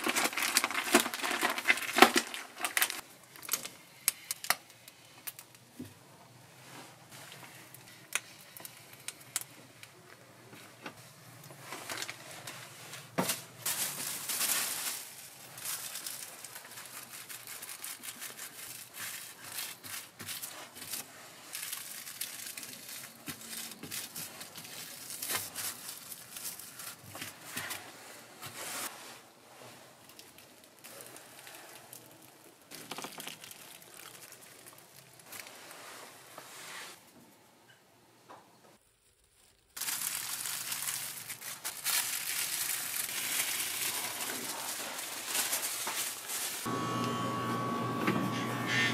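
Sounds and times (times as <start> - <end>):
aluminium foil crinkling: 0.0 - 5.6, 7.2 - 10.1, 11.4 - 27.9, 29.9 - 35.9, 38.9 - 46.7.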